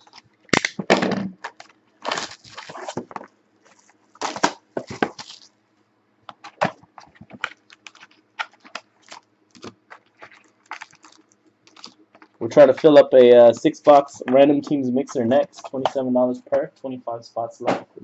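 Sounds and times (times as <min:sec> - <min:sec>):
plastic wrap tearing and crinkling: 0:00.0 - 0:05.6, 0:06.4 - 0:12.4.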